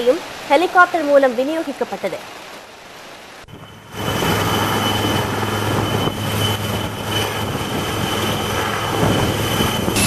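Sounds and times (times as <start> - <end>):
helicopter turbine and rotor: 3.4 - 10.0.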